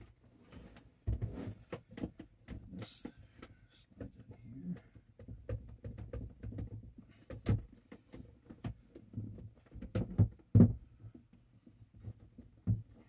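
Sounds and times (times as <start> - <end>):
hard plastic knocks: 4.8 - 11.2.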